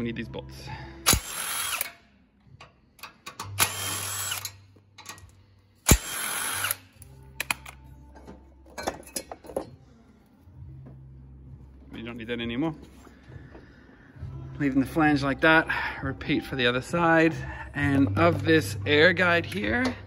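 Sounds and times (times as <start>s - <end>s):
impact wrench spinning bolts: 1.1s - 2.0s, 3.0s - 5.2s, 5.9s - 7.8s.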